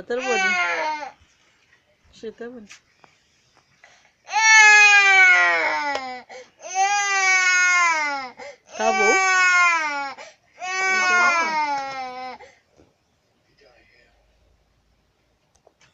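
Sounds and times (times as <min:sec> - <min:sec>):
young child crying: 0:10.9 - 0:12.4.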